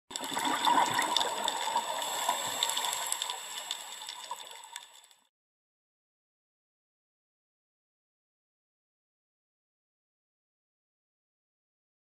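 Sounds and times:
rushing water-like hiss: 0.6s - 5.1s.

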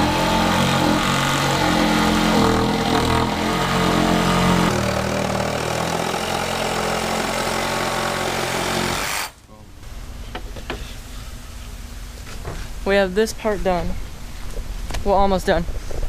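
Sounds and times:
power tool motor whirring: 0.0s - 9.4s.

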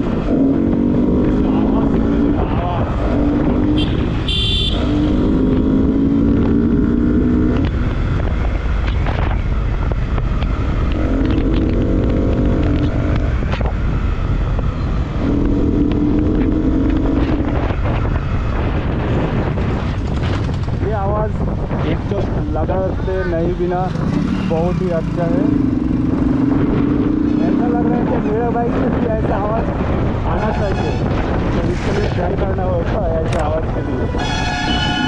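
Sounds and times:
motorcycle engine accelerating: 0.0s - 20.8s, 23.8s - 30.2s
wind noise on microphone: 0.0s - 35.0s.

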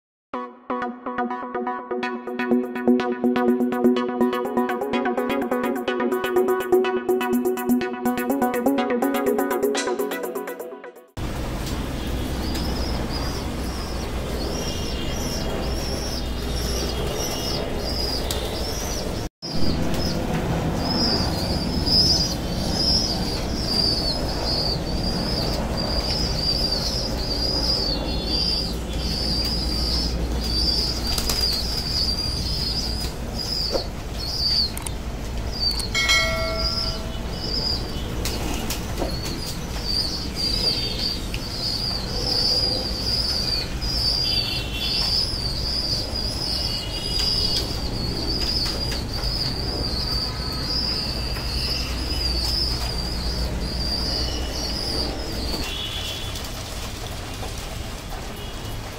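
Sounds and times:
high wavering twitter: 12.1s - 34.9s, 35.5s - 55.9s
pigeon wings flapping: 30.3s - 32.1s.

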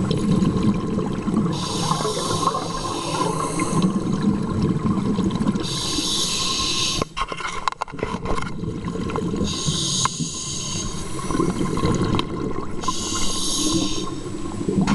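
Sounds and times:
exhaled bubbles gurgling: 0.0s - 7.1s, 7.9s - 14.9s
regulator inhale hiss: 1.5s - 4.1s, 5.6s - 7.2s, 9.4s - 11.8s, 12.8s - 14.6s.

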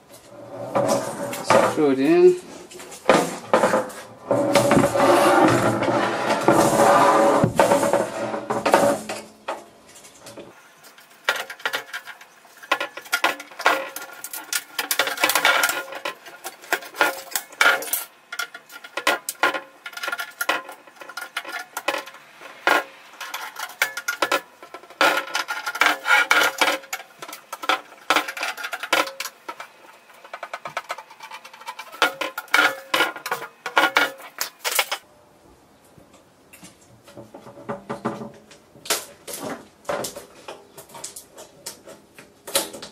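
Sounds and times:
metal and plastic clicking and rattling: 7.5s - 35.0s, 36.6s - 42.9s.

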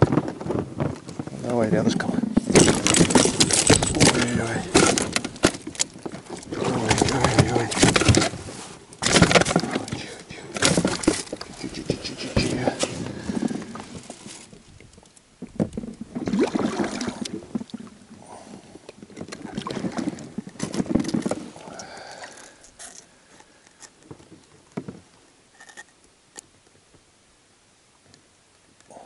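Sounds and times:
water splashing around boat: 0.0s - 22.6s.

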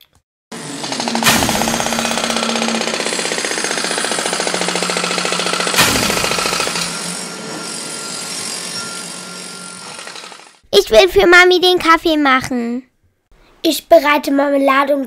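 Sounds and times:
motor hum: 0.5s - 10.6s
power tool hammering rattle: 0.5s - 10.6s
loud knock: 1.0s - 3.1s, 5.6s - 7.0s.

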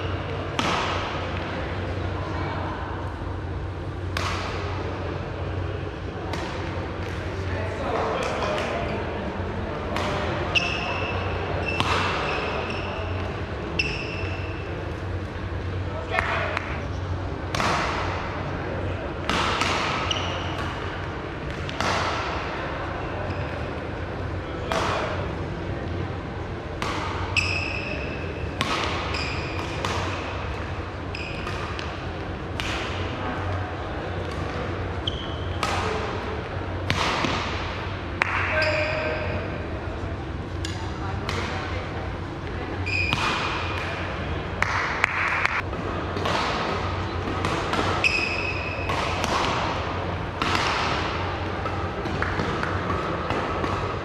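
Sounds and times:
footfalls echoing in a hall: 0.0s - 54.0s
shoes squeaking on floor: 10.6s - 13.2s, 31.1s - 31.4s, 35.0s - 35.6s, 42.8s - 43.1s, 48.0s - 48.8s
racket striking shuttlecock: 50.4s - 53.8s.

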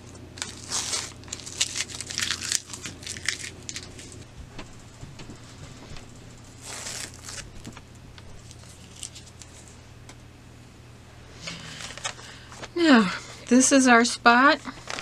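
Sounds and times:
paper-like stabilizer rustling: 0.4s - 9.8s, 11.5s - 12.8s, 14.6s - 15.0s.

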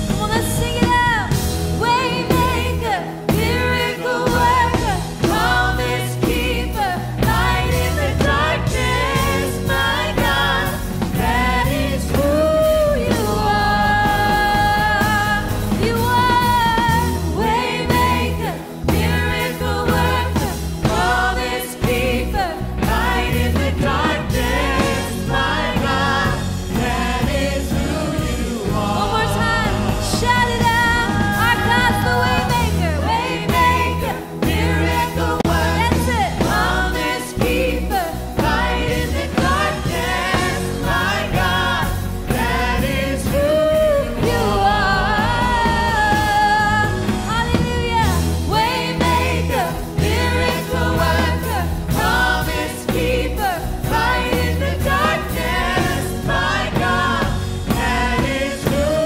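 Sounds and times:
worship band and singers: 0.0s - 59.0s.

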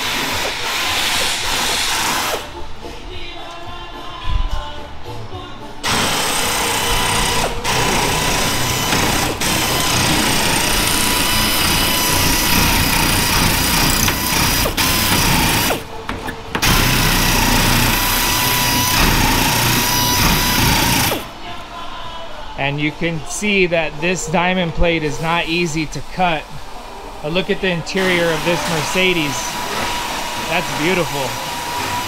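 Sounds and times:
power tool cutting metal: 0.0s - 2.5s, 5.8s - 15.9s, 16.6s - 21.3s, 28.0s - 32.0s.

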